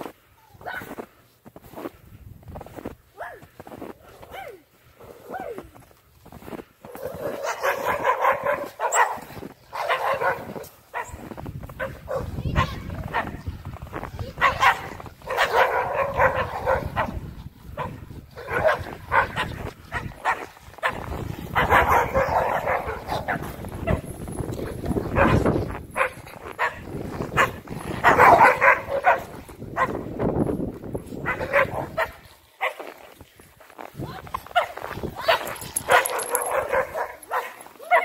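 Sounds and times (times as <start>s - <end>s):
dogs barking and yipping: 6.8s - 13.5s, 14.3s - 30.2s, 31.0s - 32.9s, 34.4s - 38.0s.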